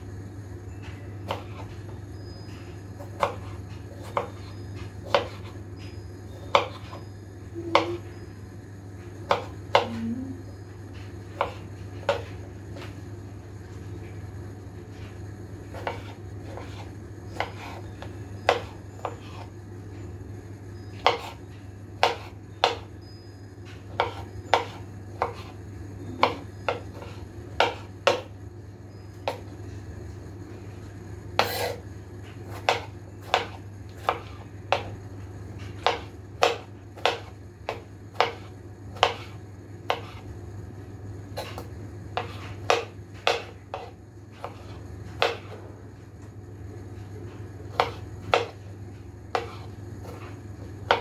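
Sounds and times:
steady low hum: 0.0 - 51.0
knife chopping on cutting board: 1.3 - 1.7, 3.0 - 5.6, 6.5 - 7.0, 9.2 - 9.9, 11.4 - 12.3, 15.7 - 17.8, 18.4 - 19.5, 21.0 - 21.4, 22.0 - 22.9, 23.9 - 25.6, 26.2 - 28.3, 31.4 - 31.8, 32.4 - 35.0, 35.7 - 40.2, 41.4 - 45.6, 47.7 - 48.6, 49.3 - 51.0.

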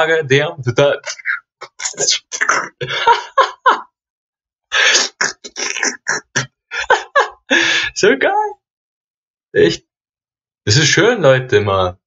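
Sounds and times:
man laughing breathily: 2.8 - 3.8, 4.7 - 8.0.

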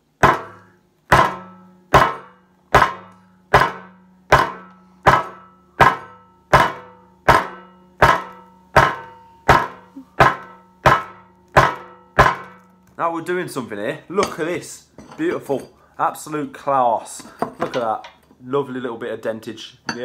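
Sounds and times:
metal trowel striking a phone: 0.2 - 12.9.

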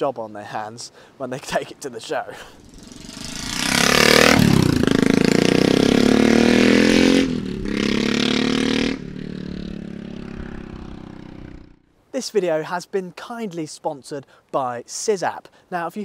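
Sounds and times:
motorcycle engine revving: 2.6 - 11.8.

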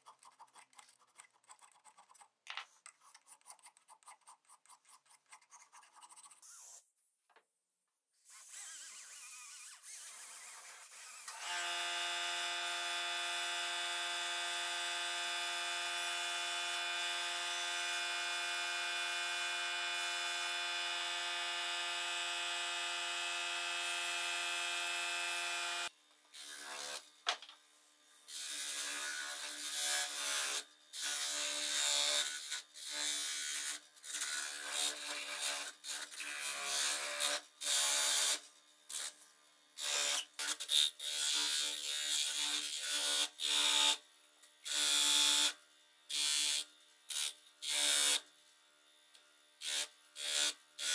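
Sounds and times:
hand file on brass: 2.9 - 6.8
rotary tool whining: 8.3 - 11.4.

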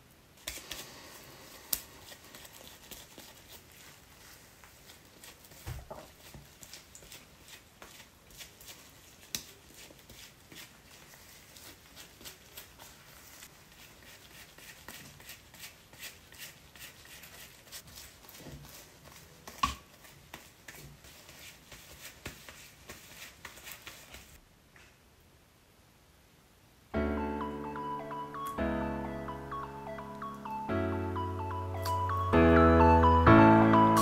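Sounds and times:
brush rustling through wet hair: 0.4 - 24.4
gloved hands handling hair: 0.4 - 24.4.

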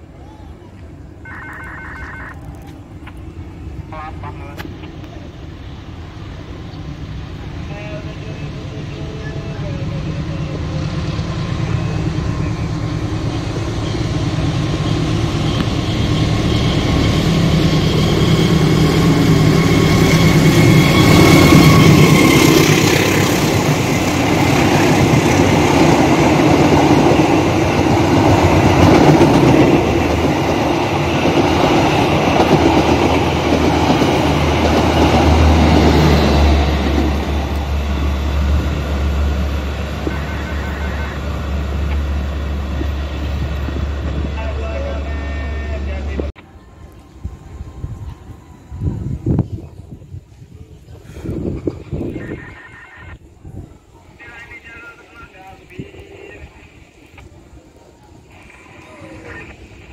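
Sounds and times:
steady high whine: 0.8 - 50.0, 51.7 - 59.9
diesel locomotive passing: 2.3 - 59.9
train wheels rumbling on track: 2.8 - 52.3.

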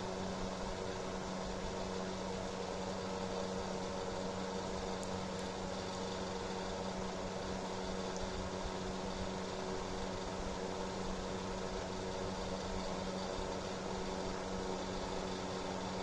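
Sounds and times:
space heater fan whirring: 0.0 - 16.0.

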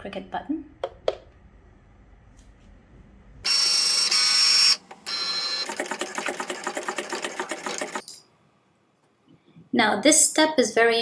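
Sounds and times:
cutting machine motors whining: 3.5 - 6.4.

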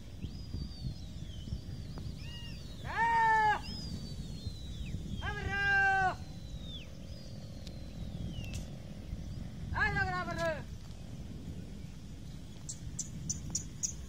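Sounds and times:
thin high falling whistles: 0.0 - 8.7
steady low rumble: 0.0 - 14.0
loud drawn-out animal calls: 2.2 - 3.9.

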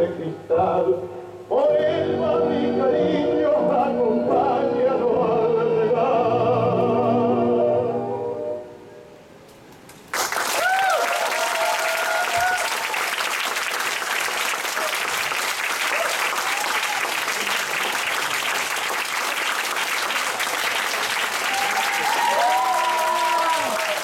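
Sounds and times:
audience applauding: 10.1 - 24.0
person cheering: 10.6 - 12.8, 15.9 - 17.2, 21.4 - 24.0.

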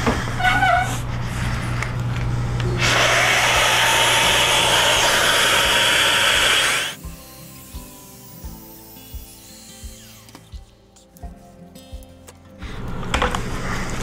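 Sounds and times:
quiet background music: 1.1 - 14.0
dust extractor rushing hiss: 2.8 - 10.0.

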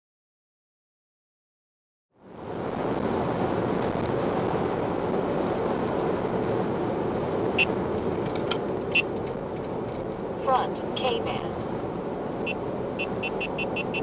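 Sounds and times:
road and tyre noise in car: 2.1 - 14.0
short high beeps: 12.5 - 14.0.

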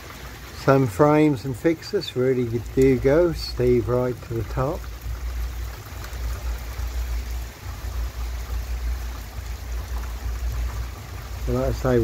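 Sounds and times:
heavy rain on wet street: 0.0 - 12.0.

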